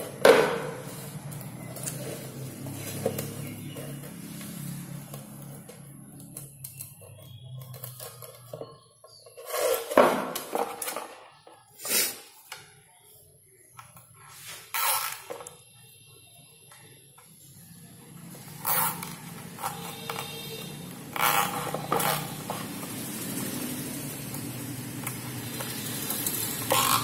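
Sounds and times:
plastic rustling and scraping: 0.0 - 12.0, 13.9 - 15.9, 18.3 - 27.0.

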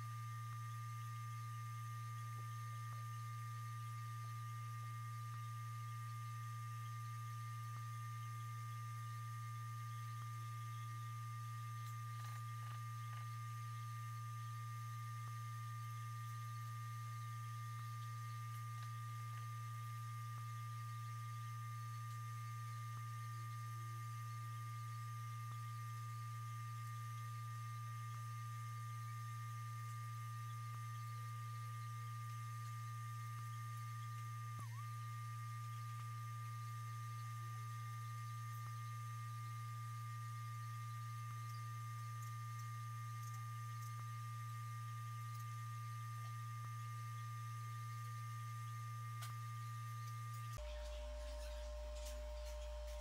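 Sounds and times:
low electrical hum: 0.0 - 53.0.

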